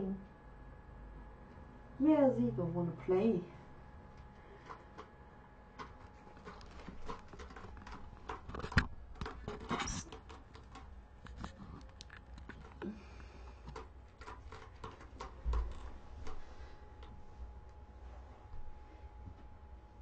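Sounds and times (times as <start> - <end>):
camera handling taps and rustling: 5.8 - 10.0.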